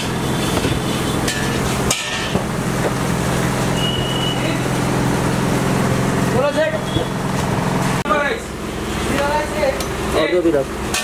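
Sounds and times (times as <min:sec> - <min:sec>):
low mechanical hum: 0:00.0 - 0:11.0.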